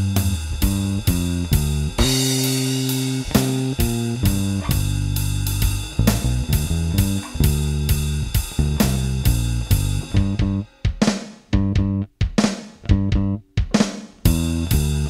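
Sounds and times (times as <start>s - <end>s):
bass guitar blues line: 0.0s - 10.7s, 11.6s - 12.2s, 12.8s - 13.5s, 14.2s - 15.0s
drum kit beat: 0.0s - 15.0s
cymbal crash: 2.0s - 10.6s.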